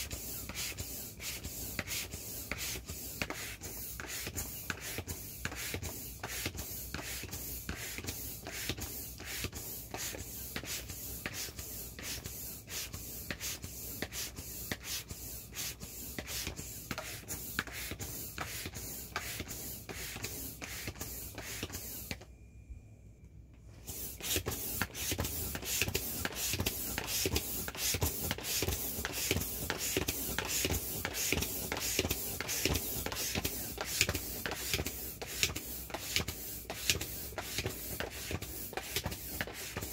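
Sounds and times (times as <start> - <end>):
air pump whooshing strokes: 0.0 - 22.2, 23.8 - 39.9.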